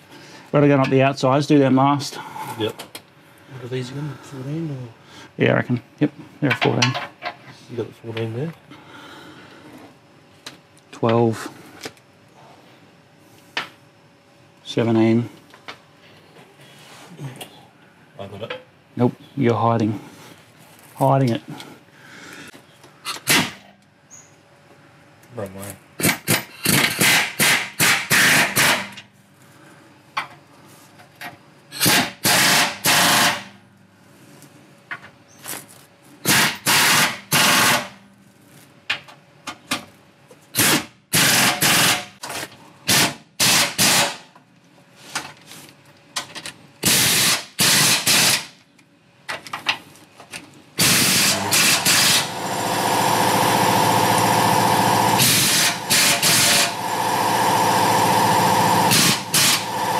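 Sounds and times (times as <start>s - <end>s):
impact wrench hammering: 50.8s - 59.9s.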